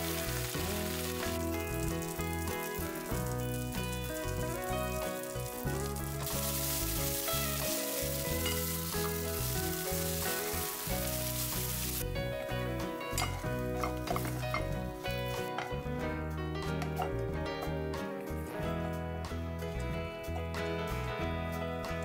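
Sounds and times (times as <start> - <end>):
onions sizzling in a pan: 0.0 - 15.5.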